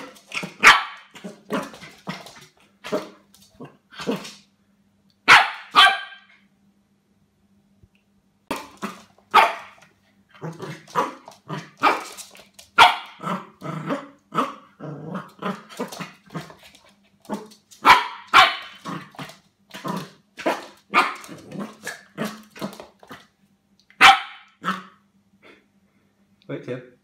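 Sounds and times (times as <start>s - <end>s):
puppy barking: 0.0s - 1.8s, 5.2s - 6.4s, 8.5s - 9.8s, 10.7s - 12.2s, 12.8s - 14.6s, 17.3s - 19.0s, 20.4s - 22.3s, 24.0s - 25.0s.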